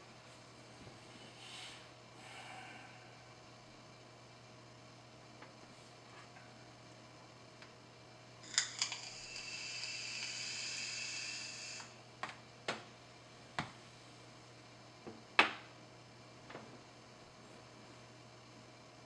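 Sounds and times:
airy hiss with faint whistle: 9.0s - 12.0s.

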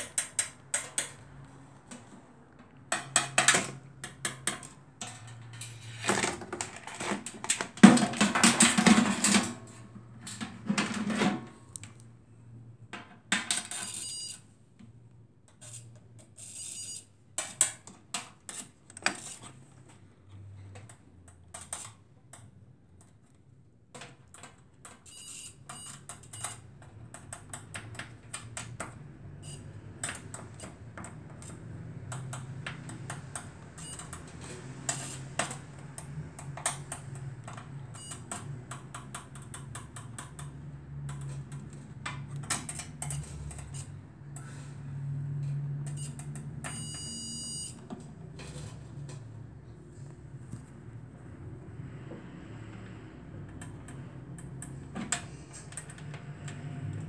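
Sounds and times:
small clicks and taps on metal: 34.9s - 44.5s.

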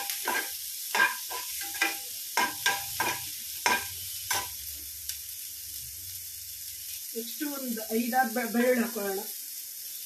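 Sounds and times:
spoon scraping frying pan: 0.0s - 4.6s
oil sizzling: 0.0s - 10.0s.

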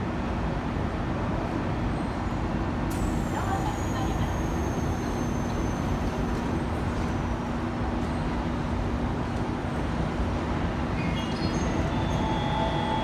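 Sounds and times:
electric train humming: 9.8s - 13.0s.

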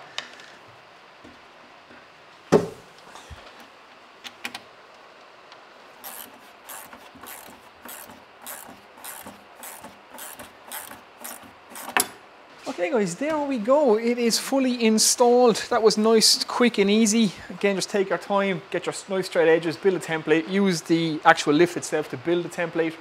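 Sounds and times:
ratchet tightening nuts: 6.0s - 12.1s.

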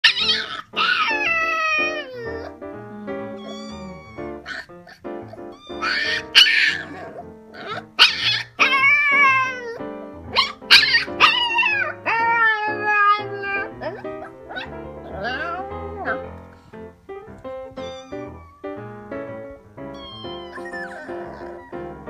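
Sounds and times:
puppy howling: 0.0s - 5.0s, 5.6s - 9.8s, 10.4s - 16.4s, 20.0s - 22.0s
background music: 0.0s - 22.0s.

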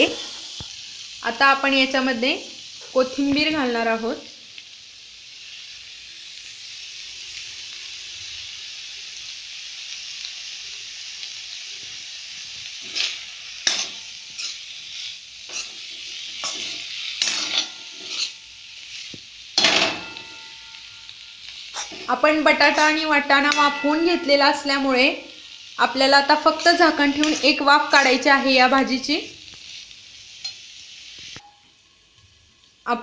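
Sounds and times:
vegetables sizzling in oil: 0.0s - 33.0s
metal spatula scraping pan: 12.8s - 18.5s, 19.6s - 24.9s, 26.5s - 28.3s.

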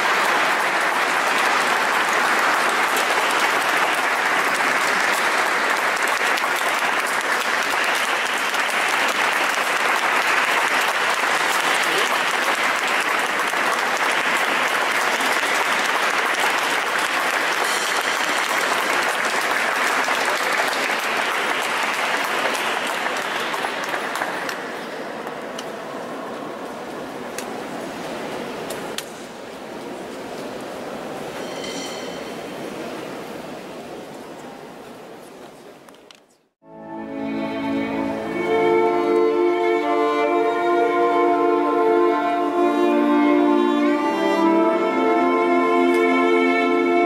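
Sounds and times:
audience applauding: 0.0s - 25.6s.

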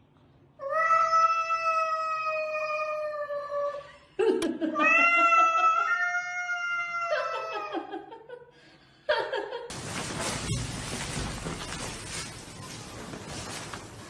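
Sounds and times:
cat yowling: 4.8s - 7.7s.

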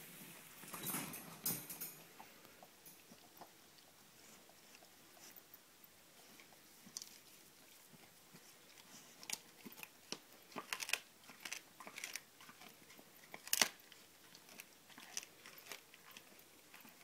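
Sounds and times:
dog crunching bones: 6.4s - 17.0s
meat tearing: 9.2s - 17.0s.

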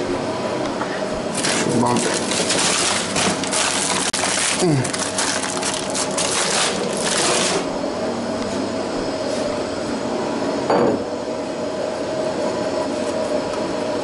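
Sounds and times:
steady background hum: 0.0s - 14.0s
paper bag crinkling: 1.3s - 7.7s
bread tearing: 1.4s - 7.6s.

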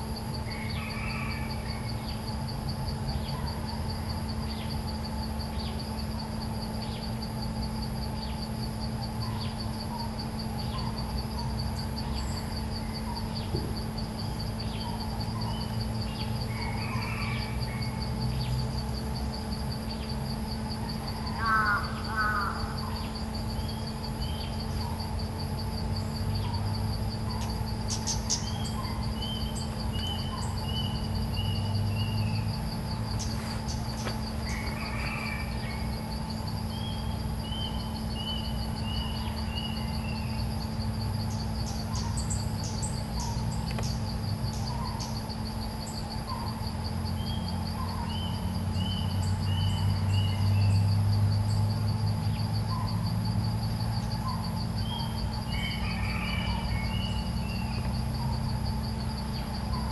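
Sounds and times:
high insect trill: 0.0s - 59.9s
bird chirps: 27.3s - 50.9s.

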